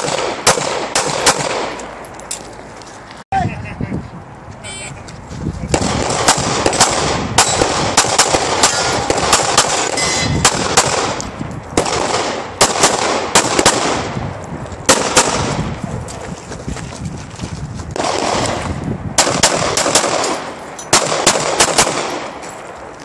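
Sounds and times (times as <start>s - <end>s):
pistol shots echoing: 0.0s - 1.9s, 5.7s - 14.2s, 14.9s - 15.6s, 18.0s - 18.6s, 19.2s - 22.4s.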